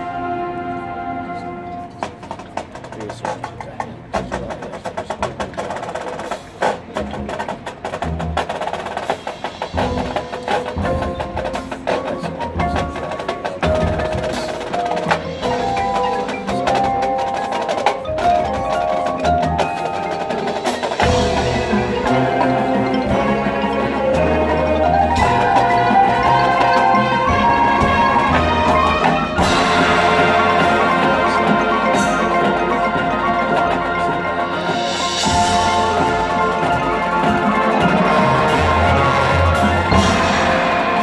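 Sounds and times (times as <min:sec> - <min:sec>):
marching band drums: 0:00.0 - 0:41.0
mallet instruments ringing: 0:09.7 - 0:41.0.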